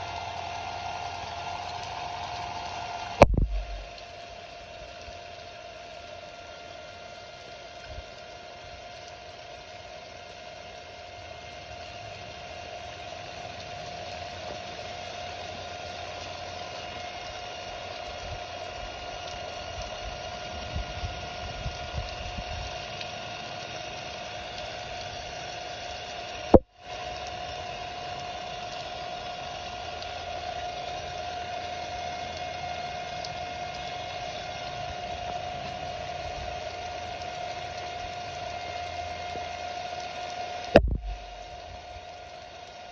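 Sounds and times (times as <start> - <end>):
steady whine: 0.0 - 4.8, 40.6 - 42.0
water spraying on pavement: 0.0 - 42.9
sharp click: 40.8 - 41.4.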